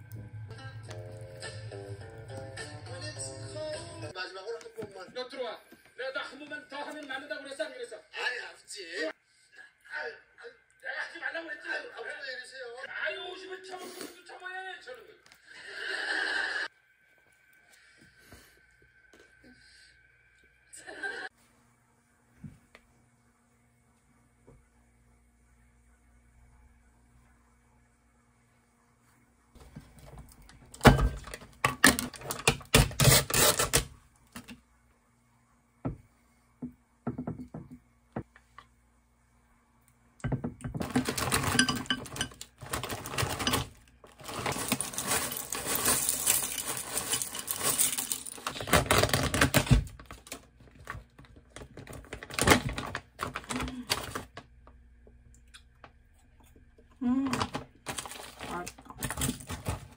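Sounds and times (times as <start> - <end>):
frozen berries clattering: 40.7 - 54.4, 57.2 - 59.9
pouch rustling: 42.6 - 49.1.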